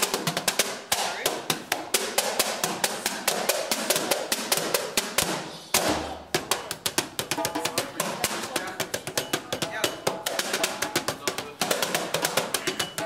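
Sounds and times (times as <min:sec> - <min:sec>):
hand drumming on wooden stools: 0:00.0 - 0:13.0.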